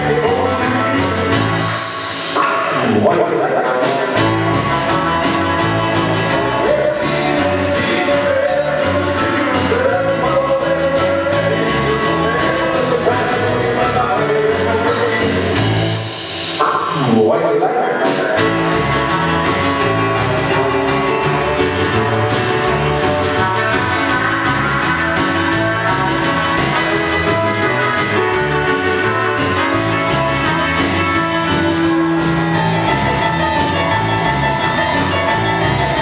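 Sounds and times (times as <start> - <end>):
bass: 0.0 - 36.0
drums: 0.0 - 36.0
electric guitar country song: 0.0 - 36.0.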